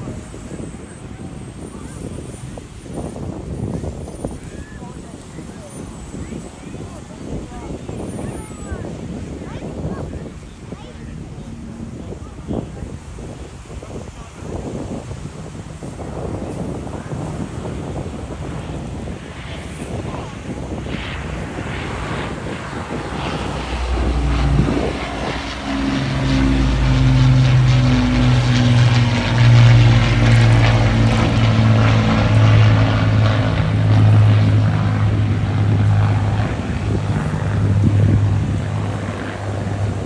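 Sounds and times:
propeller aircraft engines droning: 0.0 - 40.0.

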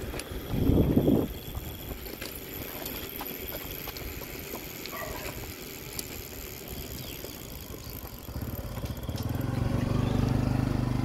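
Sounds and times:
vehicle engine approaching: 6.5 - 11.0.

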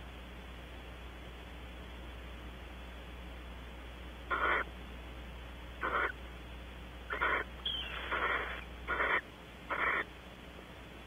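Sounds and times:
owl hissing calls: 4.3 - 4.7, 5.8 - 6.2, 7.1 - 10.1.

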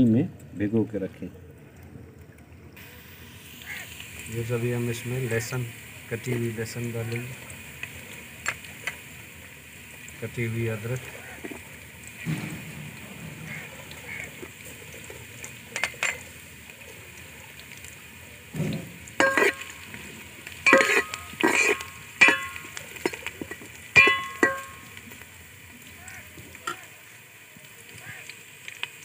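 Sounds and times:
onions sizzling in hot fat: 2.8 - 29.0
metal spatula scraping a pot: 19.2 - 19.7, 20.6 - 24.8.

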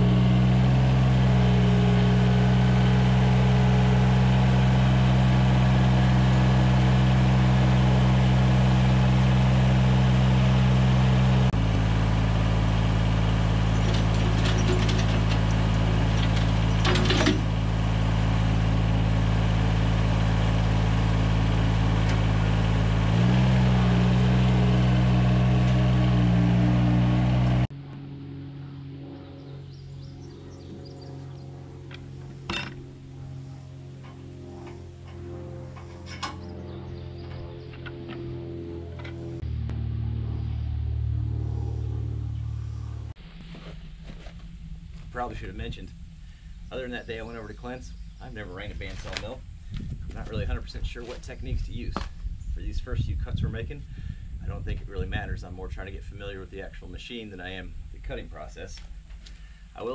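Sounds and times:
tractor engine running: 0.0 - 59.9
metal chain clinks: 13.8 - 15.4.

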